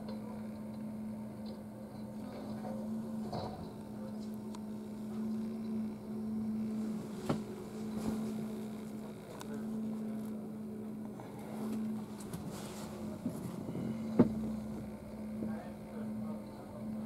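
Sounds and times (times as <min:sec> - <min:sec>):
steady low hum: 0:00.0 - 0:17.0
light clicks and knocks: 0:14.0 - 0:14.9.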